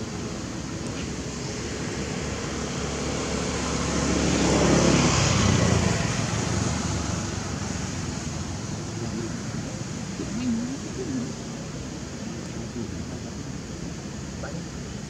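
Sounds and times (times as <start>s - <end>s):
steady background hiss: 0.0s - 15.0s
motor vehicle passing by: 1.6s - 11.6s.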